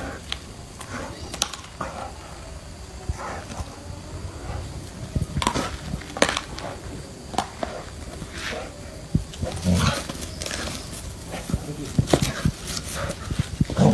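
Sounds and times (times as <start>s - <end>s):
dog scuffling with snake: 0.0s - 13.9s
sharp cracks and knocks: 5.4s - 6.7s.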